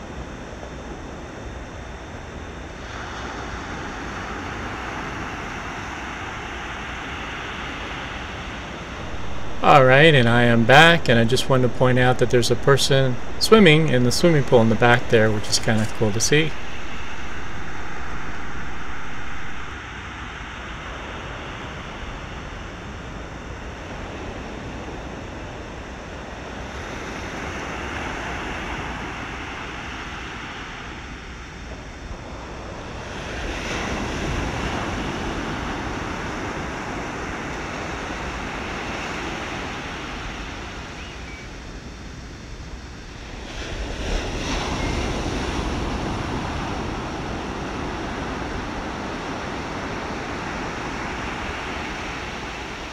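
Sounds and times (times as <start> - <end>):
wind: 0.0 - 52.9
ocean surf: 2.8 - 21.8.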